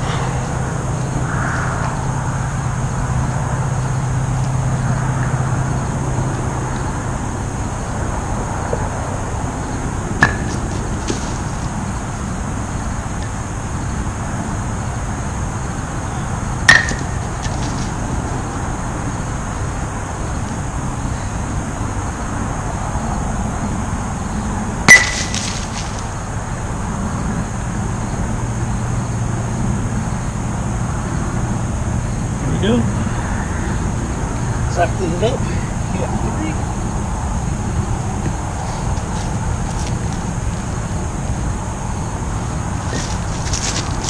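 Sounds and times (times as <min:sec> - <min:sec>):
distant traffic hum: 0:00.0 - 0:44.0
wooden batons striking wooden blocks: 0:10.2 - 0:11.4, 0:16.7 - 0:17.8, 0:24.9 - 0:26.0.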